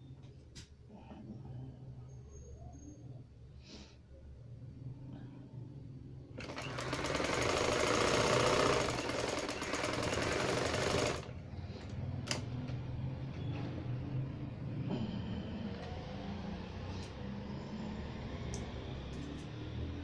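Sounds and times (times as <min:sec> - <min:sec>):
sewing machine stitching: 0:06.4 - 0:11.3.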